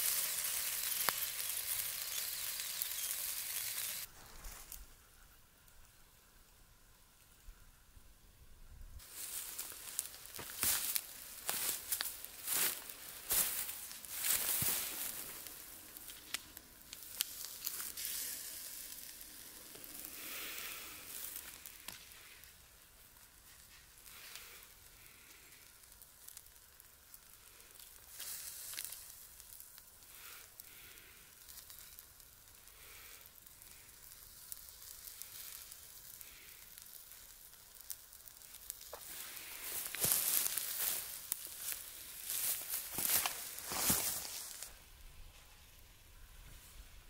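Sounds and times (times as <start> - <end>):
sausages sizzling over embers: 0.0 - 5.0, 9.0 - 47.0
rustling as food is handled: 9.0 - 26.4, 33.6 - 44.8.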